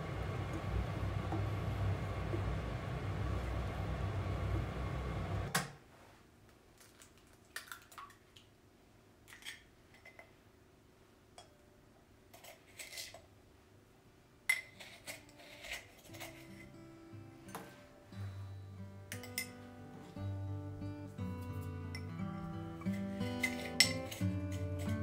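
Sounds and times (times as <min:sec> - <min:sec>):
soup being stirred in saucepan: 0:22.8 - 0:25.0.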